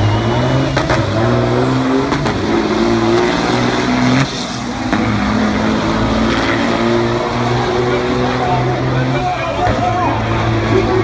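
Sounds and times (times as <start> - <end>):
diesel trucks accelerating hard: 0.0 - 11.0.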